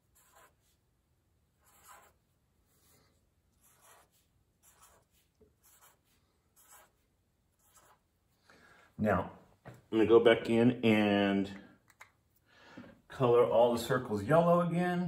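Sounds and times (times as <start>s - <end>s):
marker scratching on paper: 0.0s - 0.9s, 1.5s - 8.2s.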